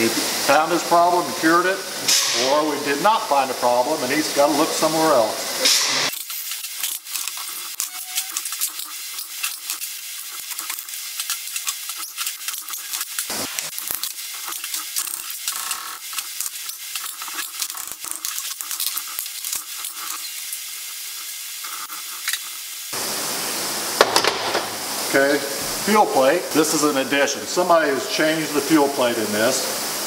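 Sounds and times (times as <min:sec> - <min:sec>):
hand ratchet clicking: 0:06.1 - 0:20.4.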